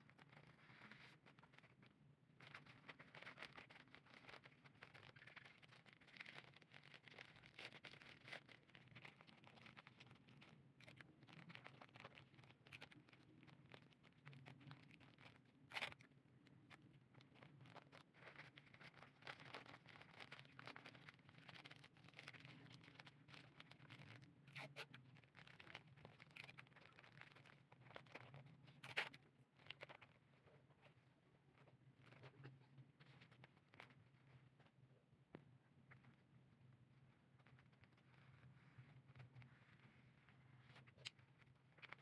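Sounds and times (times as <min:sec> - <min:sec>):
wrapping paper rustling and crinkling: 0:00.0 - 0:30.1.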